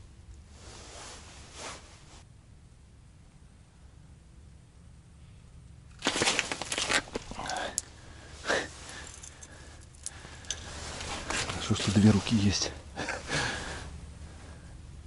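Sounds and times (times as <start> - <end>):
winter clothing rustling: 0.4 - 2.3, 6.0 - 14.6.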